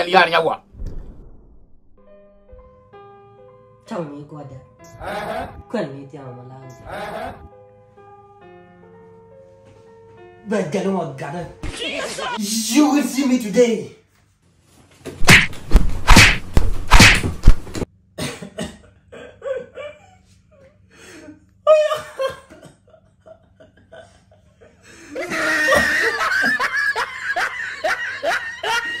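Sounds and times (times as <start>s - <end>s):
slaps and thumps: 15.1s - 17.8s.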